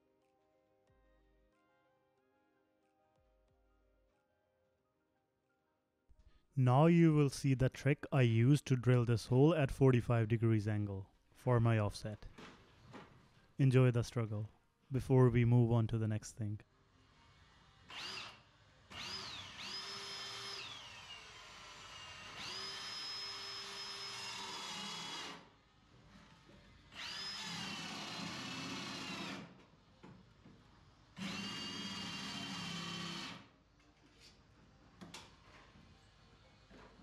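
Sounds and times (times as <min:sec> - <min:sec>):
power drill boring wood: 0:17.3 - 0:25.6, 0:26.3 - 0:29.5, 0:31.2 - 0:33.5.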